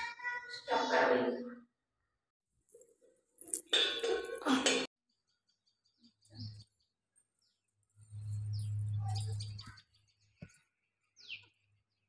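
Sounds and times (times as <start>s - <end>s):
small birds chirping: 5.2s - 12.0s.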